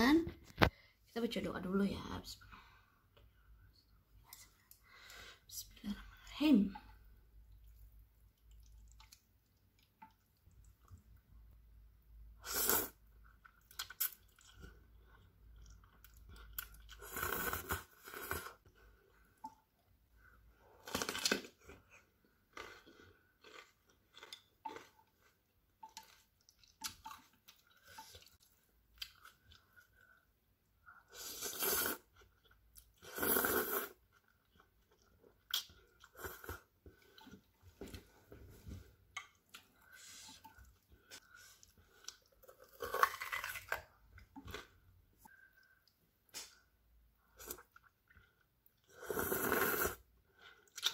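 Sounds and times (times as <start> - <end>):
chewing noodles: 7.6 - 11.0, 12.6 - 19.1, 20.8 - 30.3, 47.3 - 50.9.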